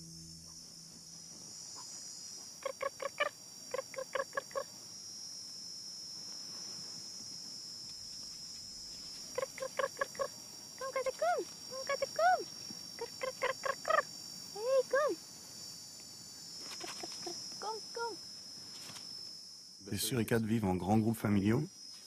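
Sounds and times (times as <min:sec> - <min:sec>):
high-pitched background drone: 0:00.0 - 0:22.0
meerkats chirping: 0:02.6 - 0:04.7, 0:09.3 - 0:14.1.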